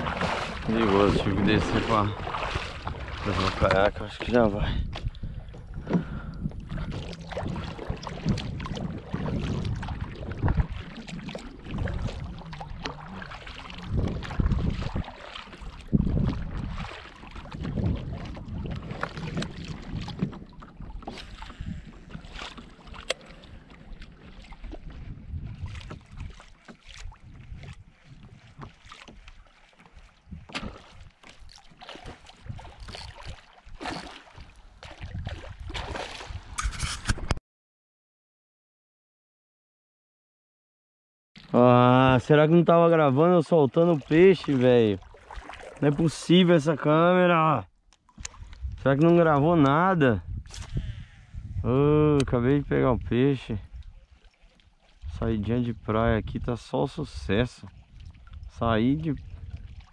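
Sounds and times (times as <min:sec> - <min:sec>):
wind buffeting microphone: 0:00.0 - 0:28.7, 0:32.3 - 0:33.2, 0:34.8 - 0:37.4, 0:48.2 - 0:54.1, 0:55.0 - 0:59.9
water splashing against hull: 0:00.0 - 0:37.4, 0:41.4 - 0:59.9.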